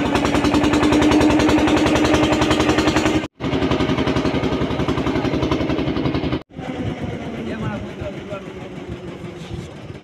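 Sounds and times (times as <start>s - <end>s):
motor boat engine knocking: 0.0s - 10.0s.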